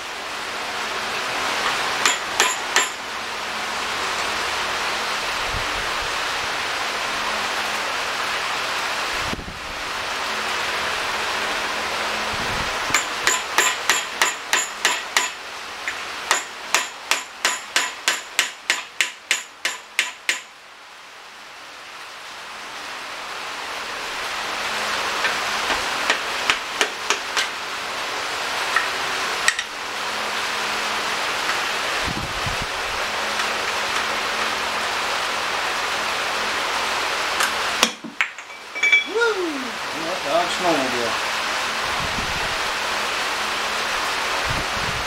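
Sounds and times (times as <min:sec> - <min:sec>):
hammer tapping metal: 0:02.0 - 0:03.0, 0:12.9 - 0:20.5, 0:26.1 - 0:27.5, 0:37.8 - 0:39.1.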